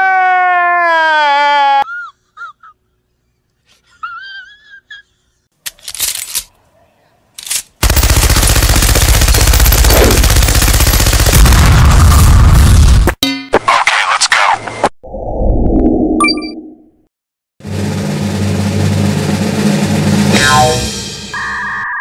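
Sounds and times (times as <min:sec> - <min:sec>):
machine gun automatic fire: 0:07.8 - 0:12.0.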